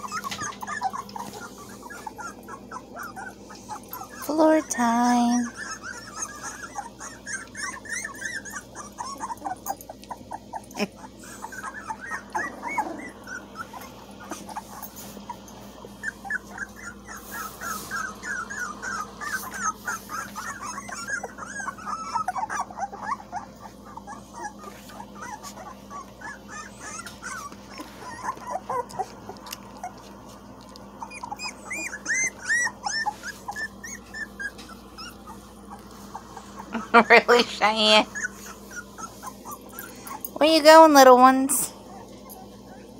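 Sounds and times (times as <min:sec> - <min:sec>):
puppies whimpering and yipping: 0:00.0 - 0:42.9.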